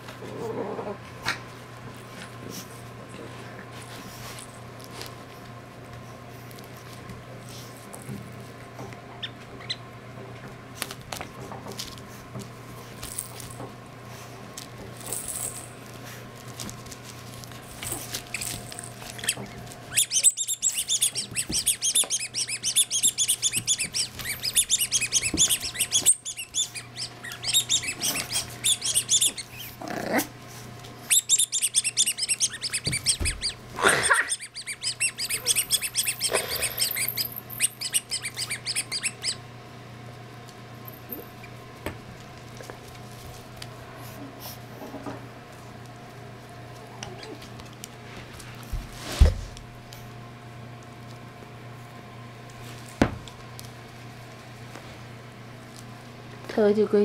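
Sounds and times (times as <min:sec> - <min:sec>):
rapid high-pitched squeaking: 0:19.2 - 0:29.7, 0:31.1 - 0:33.6, 0:34.2 - 0:39.4.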